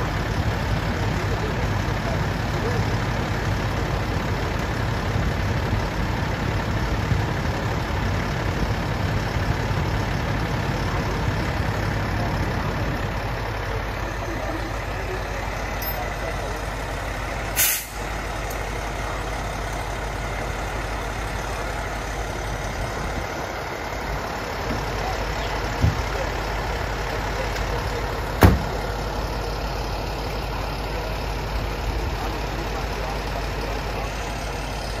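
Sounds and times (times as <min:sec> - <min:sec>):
diesel engine idling: 0:00.0 - 0:35.0
air brake hiss: 0:17.6 - 0:18.0
cab door slamming: 0:28.4 - 0:28.8.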